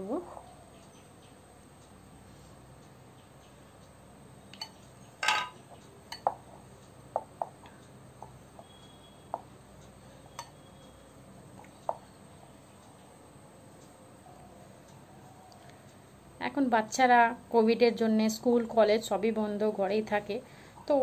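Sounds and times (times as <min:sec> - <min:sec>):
glass bowl clinking: 0:04.6 - 0:06.4, 0:10.3 - 0:10.6.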